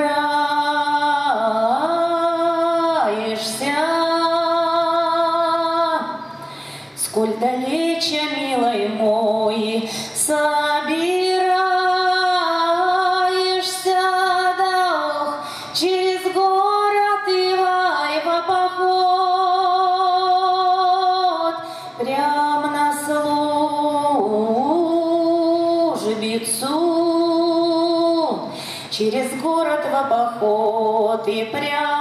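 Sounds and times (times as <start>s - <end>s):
woman singing unaccompanied: 0.0s - 6.4s, 7.0s - 32.0s.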